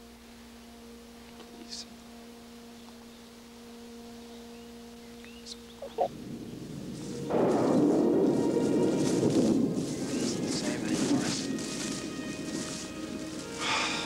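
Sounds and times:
faint steady hum: 0.0 - 14.0
rushing noise: 6.1 - 14.0.

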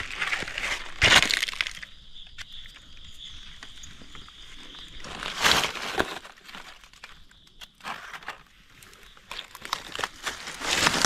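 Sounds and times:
dry leaves rustling and crackling: 5.0 - 7.2, 9.2 - 11.0.

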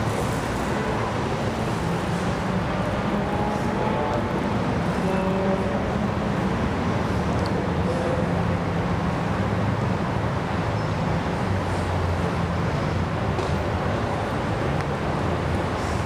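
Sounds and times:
city traffic hum: 0.0 - 16.0.

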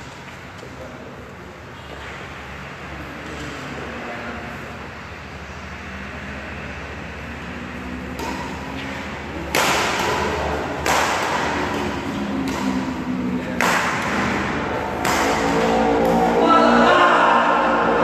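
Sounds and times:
rackets striking shuttlecock: 8.0 - 17.0.

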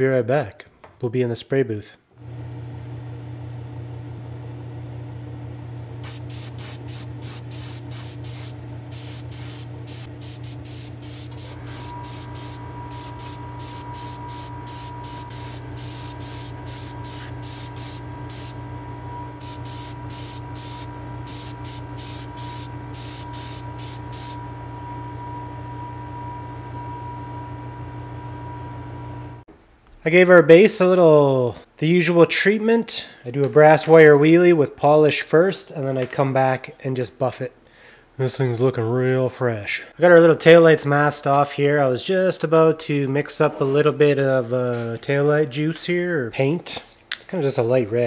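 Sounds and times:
steady hum: 2.2 - 29.4
airbrush spraying hiss: 6.0 - 18.6, 19.4 - 24.4
steady whine: 6.0 - 29.4.

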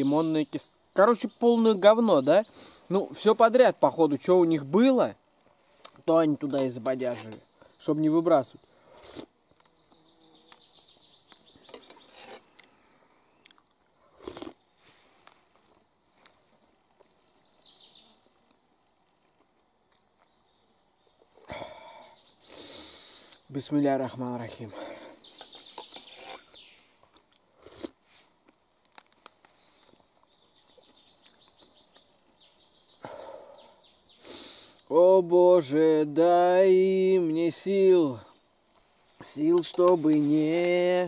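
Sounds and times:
songbird singing: 0.0 - 14.8, 15.7 - 27.9, 29.2 - 41.0
man slurping a mouthful: 8.9 - 9.3, 14.2 - 14.6, 27.6 - 28.0
spoon scraping a tin: 11.7 - 12.5, 25.6 - 26.6.

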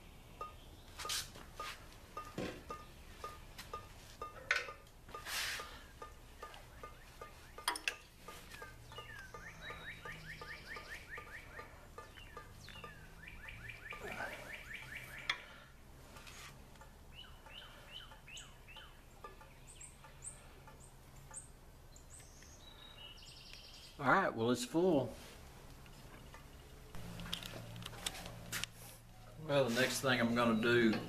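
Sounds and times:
birds chirping and trilling: 5.6 - 24.4, 25.9 - 31.0.

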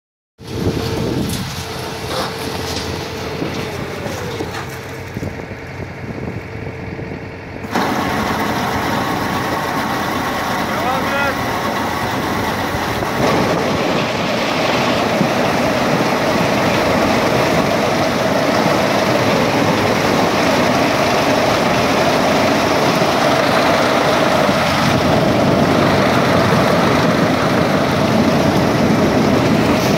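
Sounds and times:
harvester machine running: 0.4 - 29.9.

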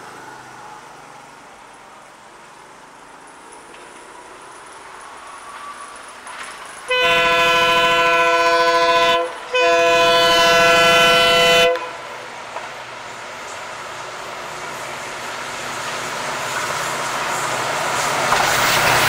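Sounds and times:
faint train rumble: 0.0 - 19.0
locomotive air horn blasts: 6.9 - 12.1.

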